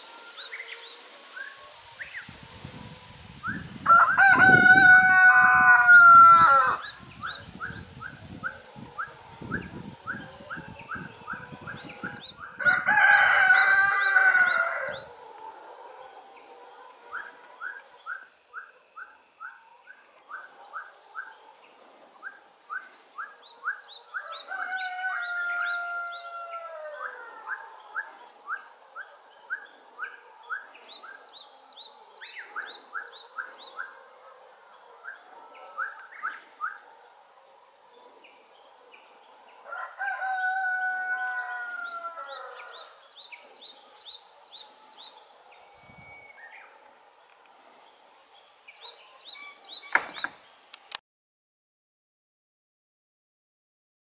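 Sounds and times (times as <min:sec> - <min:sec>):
rooster crowing: 0:03.8 - 0:07.0, 0:08.7 - 0:17.9, 0:24.1 - 0:28.9, 0:39.6 - 0:43.8.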